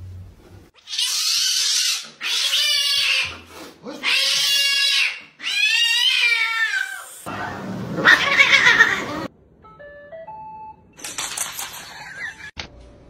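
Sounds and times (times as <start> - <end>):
cat yowling: 4.0 - 7.3, 8.0 - 9.3.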